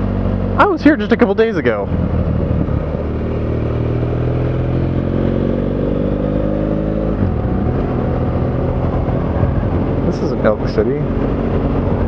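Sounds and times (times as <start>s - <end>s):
motorcycle engine running: 0.0s - 12.0s
wind rush: 1.7s - 4.2s, 7.1s - 12.0s.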